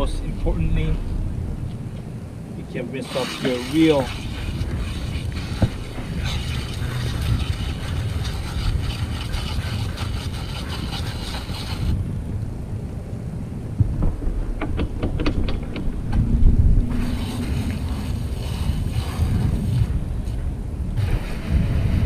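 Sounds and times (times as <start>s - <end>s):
wind rumble on microphone: 0.0s - 22.0s
water spraying from hose nozzle: 3.0s - 12.0s, 17.0s - 20.4s, 21.0s - 22.0s.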